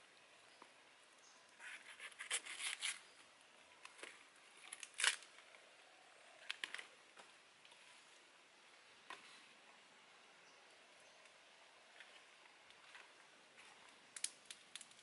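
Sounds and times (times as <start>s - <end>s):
banana leaf rustling and ripping: 4.6s - 5.3s.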